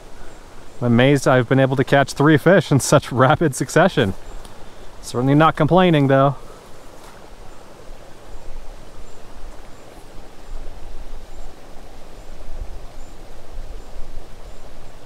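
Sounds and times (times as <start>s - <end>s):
steady hiss of air or water: 0.0s - 15.0s
wind rumbling on microphone: 6.7s - 15.0s.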